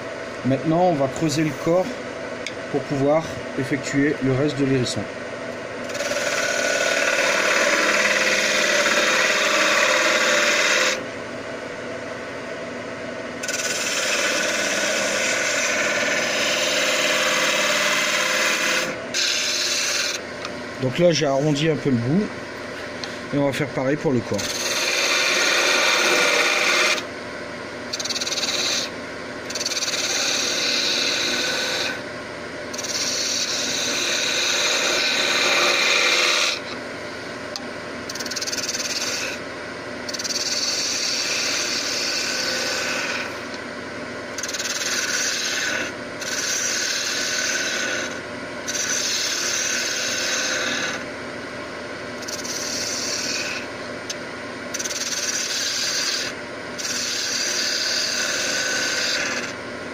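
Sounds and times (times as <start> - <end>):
gouge scraping wood on lathe: 5.8 - 11.0, 13.4 - 20.2, 24.3 - 27.1, 27.9 - 32.0, 32.7 - 36.8, 38.1 - 39.4, 40.1 - 43.6, 44.4 - 51.0, 52.2 - 53.7, 54.7 - 59.6.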